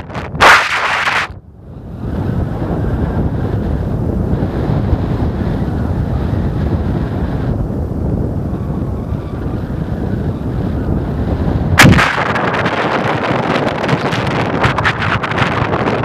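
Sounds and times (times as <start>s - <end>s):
wind buffeting microphone: 0.0s - 16.0s
sudden loud blast: 11.8s - 12.8s.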